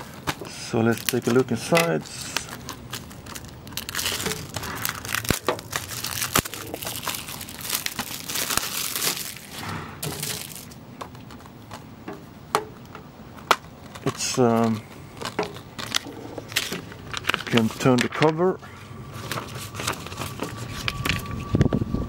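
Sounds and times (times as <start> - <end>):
plastic wrap tearing and crinkling: 0.0 - 10.8, 14.0 - 18.4.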